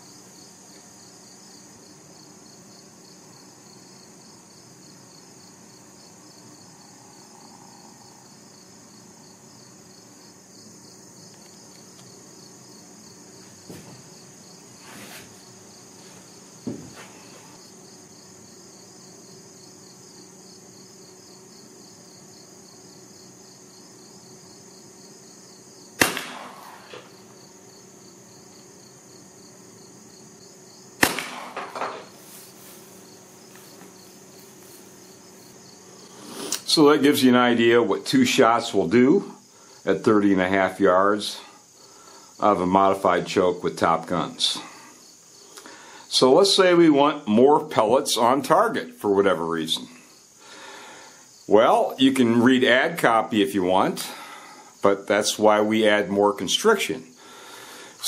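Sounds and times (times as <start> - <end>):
insects chirring: 0.0 - 58.0
faint knocks: 16.6 - 17.2
shotgun shots: 26.0 - 27.1, 31.0 - 32.1.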